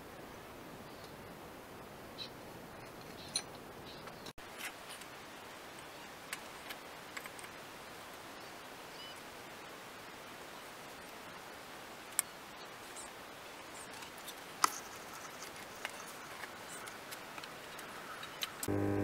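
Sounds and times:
faint steady hiss: 0:00.0 - 0:19.0.

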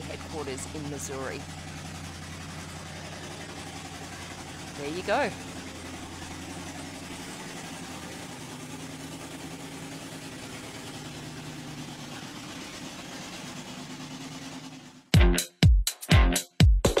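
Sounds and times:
monster truck engine running: 0:00.0 - 0:15.1
dance music with heavy beat: 0:15.1 - 0:17.0.

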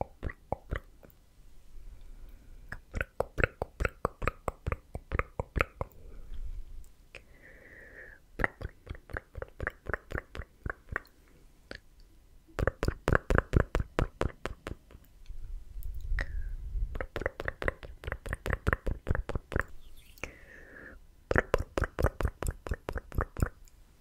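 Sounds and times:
mouth clicks and pops: 0:00.0 - 0:01.2, 0:02.7 - 0:06.0, 0:08.4 - 0:15.1, 0:15.8 - 0:20.4, 0:21.3 - 0:23.8.

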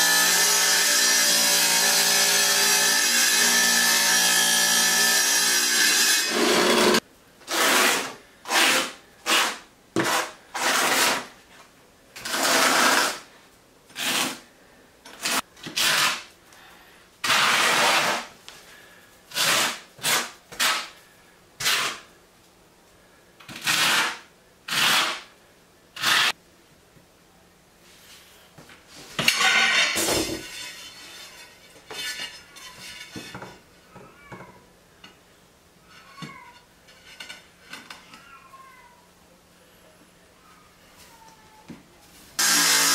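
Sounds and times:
trowel scraping mortar: 0:06.3 - 0:11.3, 0:12.2 - 0:13.2, 0:13.9 - 0:14.4, 0:15.2 - 0:16.3, 0:17.2 - 0:18.3, 0:19.3 - 0:20.9, 0:21.6 - 0:22.1.

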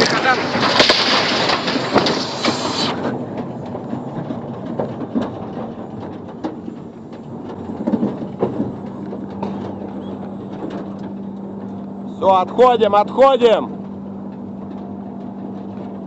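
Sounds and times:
loud rush of noise: 0:00.0 - 0:03.4, 0:12.1 - 0:13.8
knocks and rattles: 0:00.0 - 0:16.0
steady engine hum: 0:00.0 - 0:16.0
truck engine and road rumble: 0:00.0 - 0:16.0.

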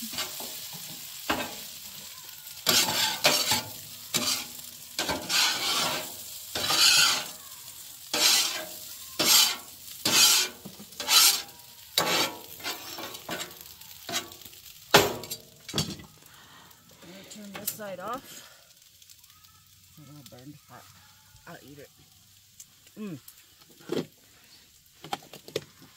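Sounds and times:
food sizzling: 0:00.0 - 0:25.9
utensil scraping pot: 0:02.6 - 0:07.5, 0:08.1 - 0:14.4.

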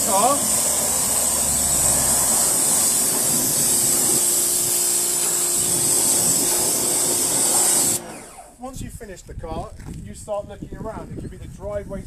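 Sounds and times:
water spray hissing: 0:00.0 - 0:08.0
pressure washer motor whine: 0:00.0 - 0:08.7.

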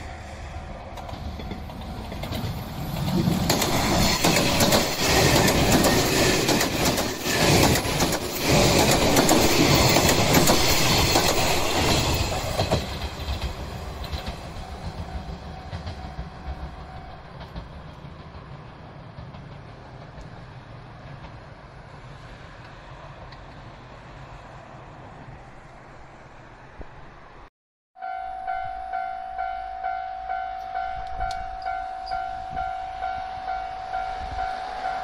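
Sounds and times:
electric train passing: 0:00.0 - 0:35.0
wheels clattering over rail joints: 0:00.9 - 0:21.6.

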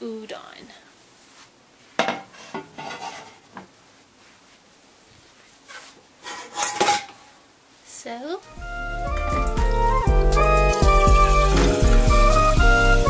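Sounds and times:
pots and pans clattering: 0:02.0 - 0:03.5, 0:06.2 - 0:07.2.

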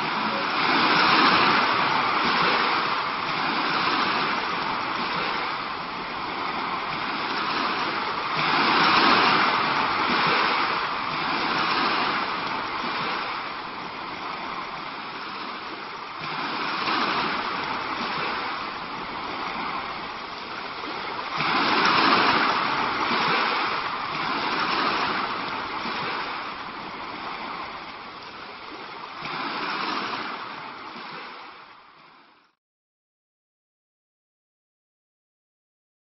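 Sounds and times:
sea waves washing: 0:00.0 - 0:32.4.

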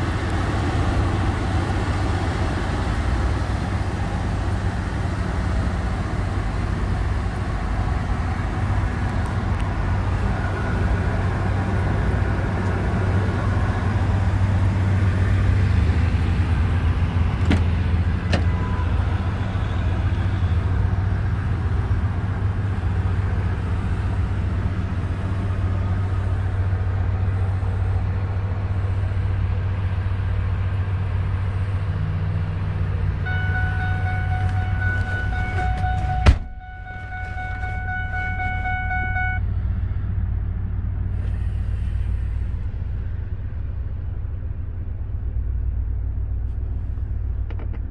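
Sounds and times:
truck engine idling: 0:00.0 - 0:47.9
dashboard warning chime: 0:33.3 - 0:39.4.

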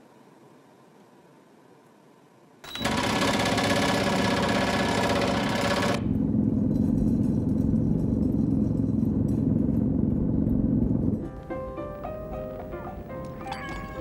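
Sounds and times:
muffled machine through floor: 0:02.7 - 0:11.4
vibration platform buzzing: 0:02.7 - 0:11.4.

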